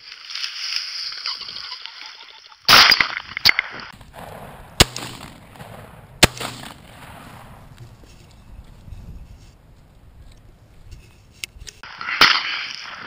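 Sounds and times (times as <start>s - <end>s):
shotgun shots: 4.0s - 7.8s.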